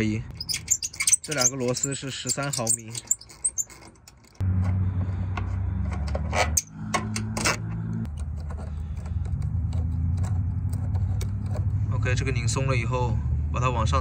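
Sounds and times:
low engine hum: 4.4 - 14.0.

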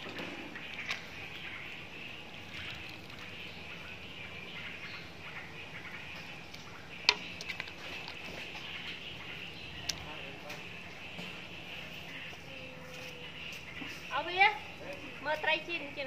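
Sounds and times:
soup boiling in metal pot: 0.0 - 12.6.

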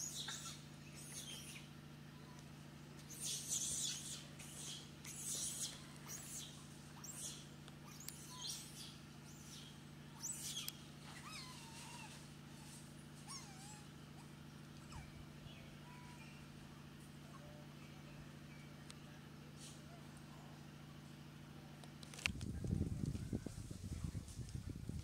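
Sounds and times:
steady low hum: 0.0 - 25.0
high animal chirps: 3.1 - 12.0.

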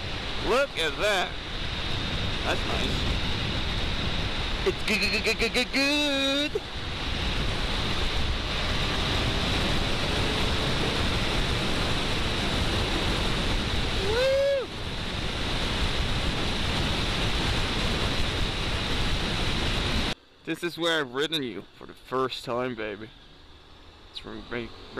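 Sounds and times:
wind noise on microphone: 1.3 - 4.9, 6.1 - 20.2.

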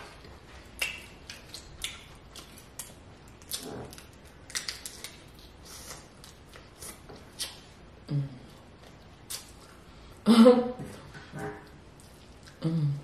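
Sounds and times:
wet chewing and lip smacks: 0.2 - 7.7, 8.8 - 9.8.

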